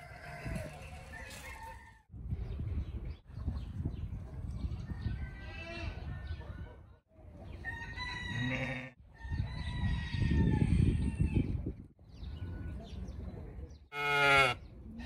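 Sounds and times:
farmyard animal calls: 0:00.0 - 0:02.0, 0:07.5 - 0:09.4, 0:13.9 - 0:15.0.

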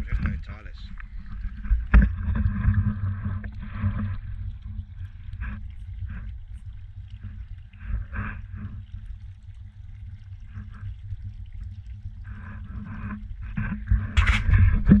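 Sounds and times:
cat rubbing against camera: 0:12.7 - 0:15.0.

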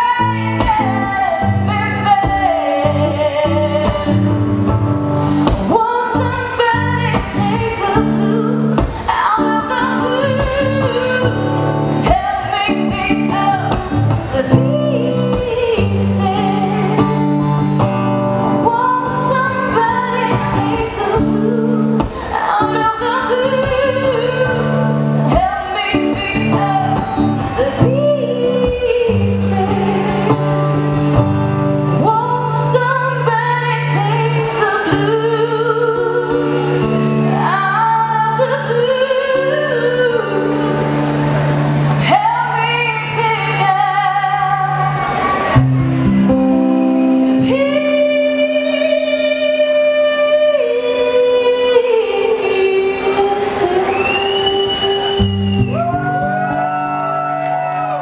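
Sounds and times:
woman singing slow melody: 0:00.0 - 0:41.1, 0:42.0 - 0:45.0, 0:47.0 - 0:57.5
strummed acoustic guitar: 0:00.1 - 0:49.2.

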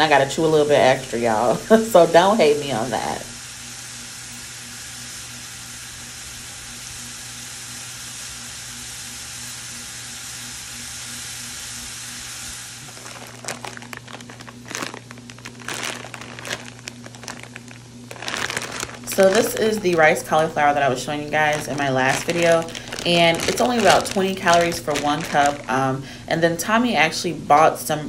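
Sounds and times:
plastic bag crinkling: 0:12.8 - 0:26.3.

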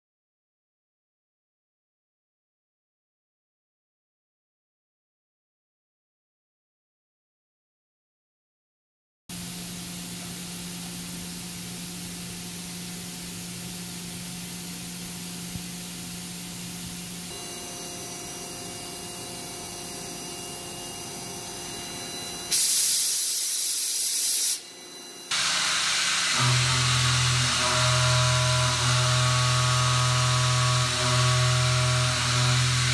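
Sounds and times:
loud spraying hiss: 0:22.5 - 0:24.6
machining center humming: 0:24.6 - 0:32.9.

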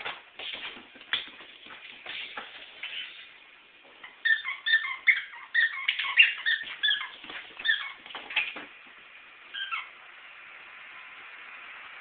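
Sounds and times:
dog whimpering: 0:04.1 - 0:08.0.

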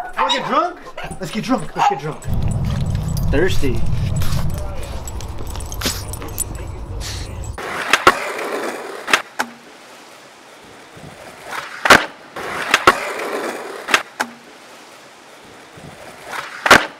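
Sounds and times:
skateboard wheels rolling on concrete: 0:02.3 - 0:16.9
skateboard clacks: 0:07.6 - 0:09.6, 0:11.5 - 0:14.4, 0:16.2 - 0:16.9.

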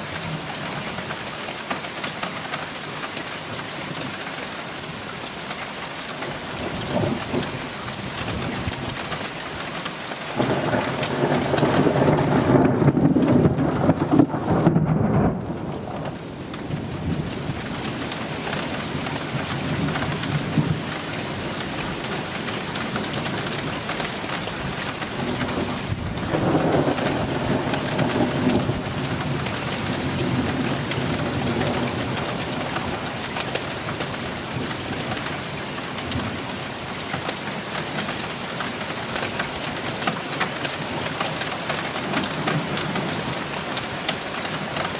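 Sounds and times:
steady rain: 0:00.0 - 0:44.9
thunder rolling: 0:10.4 - 0:17.4, 0:25.2 - 0:33.2.

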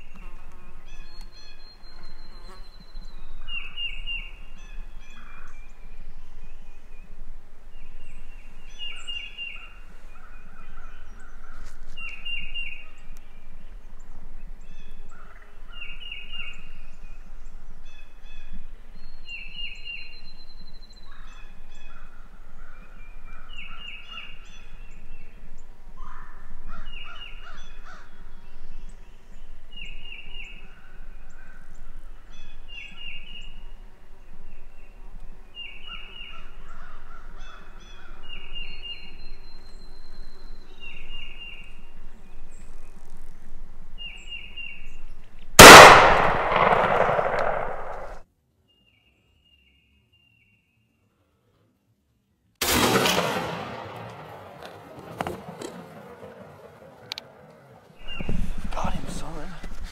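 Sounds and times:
small bird chirping: 0:00.0 - 0:45.6.

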